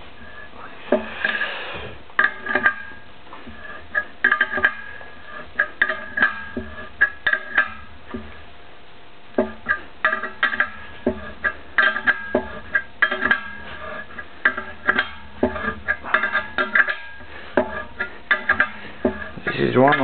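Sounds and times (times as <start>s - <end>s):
metal scrape: 9.4s - 20.0s.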